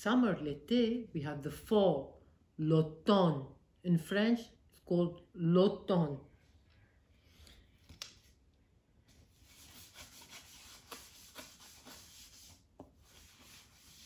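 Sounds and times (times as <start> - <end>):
pencil scratching on paper: 9.4 - 14.0.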